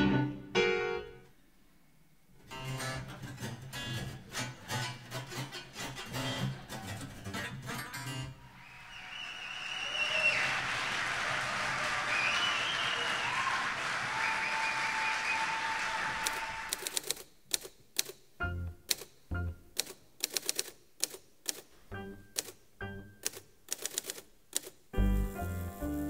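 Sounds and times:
audience applauding: 8.5 - 17.0
manual typewriter typing: 16.2 - 18.2, 19.8 - 21.7, 23.2 - 24.8.

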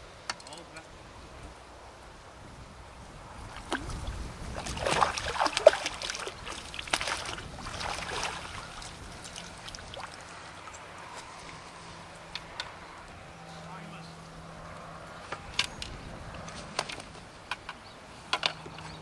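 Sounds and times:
fish splashing in water: 3.4 - 11.4.

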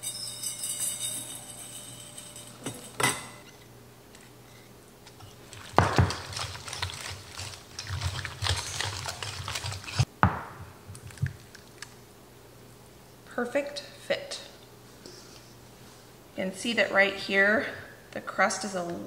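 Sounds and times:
wooden spoon scraping metal bowl: 4.2 - 10.1.

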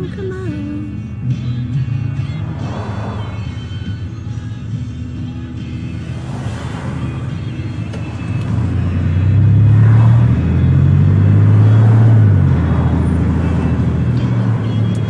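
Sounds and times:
road noise: 0.0 - 15.0
truck engine: 0.0 - 15.0.

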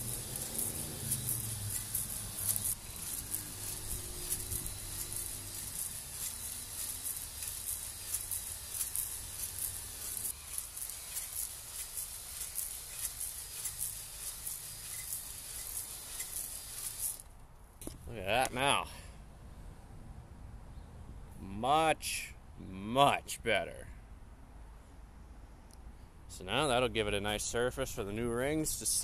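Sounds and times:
drill motor hum: 0.0 - 17.3
high pulsing hiss of honing: 0.0 - 17.3.

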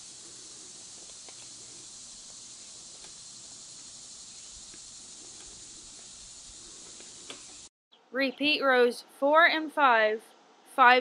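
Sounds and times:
steady background hiss: 0.0 - 7.7.

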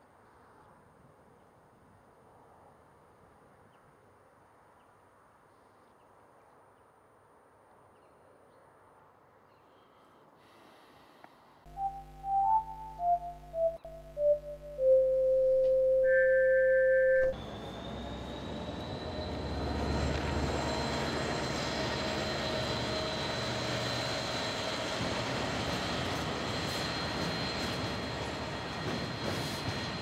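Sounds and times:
electronic music: 11.7 - 17.4
high whine: 11.7 - 22.6
locomotive rumble: 17.3 - 26.5.

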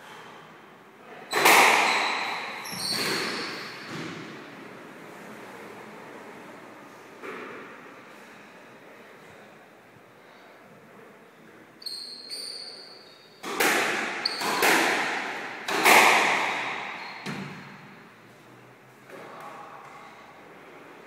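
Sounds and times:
sneaker squeaks on court floor: 1.3 - 4.2, 11.8 - 14.7, 16.1 - 17.9
squash ball bangs: 13.4 - 17.7.

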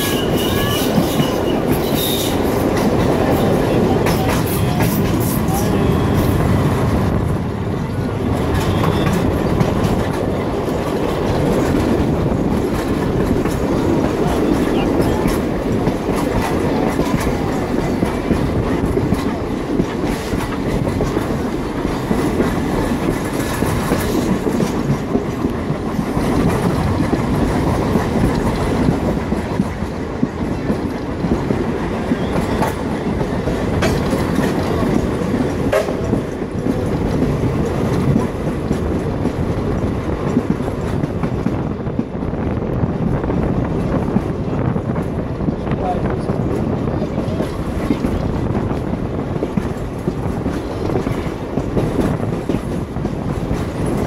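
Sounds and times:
wheels clicking over rail joints: 0.0 - 42.2
train running noise: 0.0 - 54.0.

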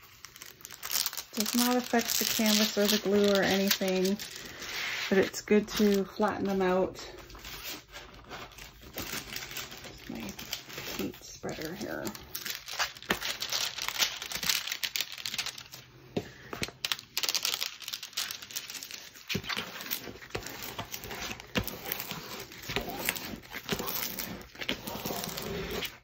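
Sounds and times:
plastic film crinkling: 0.0 - 26.0
plastic spreader pushed across film: 19.3 - 26.0.

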